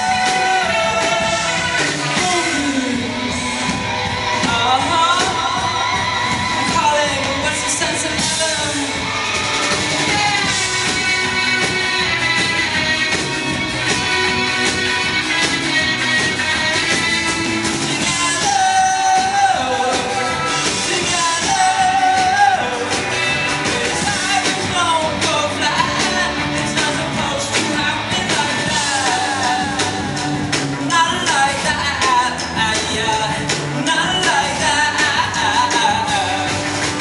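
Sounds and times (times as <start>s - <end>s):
live rock band playing: 0.0s - 37.0s
person singing lead vocal: 0.0s - 37.0s.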